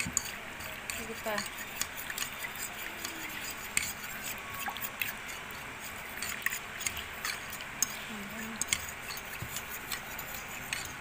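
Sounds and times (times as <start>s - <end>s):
fork clicking against bowl: 0.0s - 4.0s, 6.2s - 11.0s
fork mixing in a bowl: 0.0s - 11.0s.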